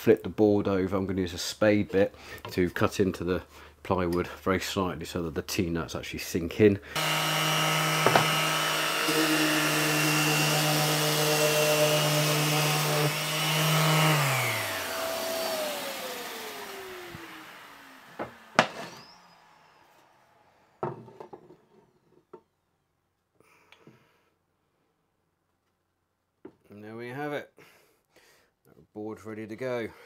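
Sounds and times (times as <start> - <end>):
electric motor running and winding down: 7.0 - 20.6
sharp knocks: 8.0 - 8.4.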